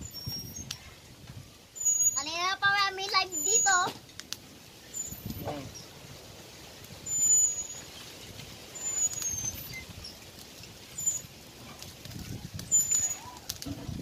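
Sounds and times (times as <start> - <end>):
faint outdoor hiss: 0.0 - 14.0
high bird chirps: 1.8 - 2.6, 3.2 - 3.9, 4.8 - 5.9, 7.0 - 10.2, 10.9 - 11.3
faint distant voice: 5.4 - 5.8.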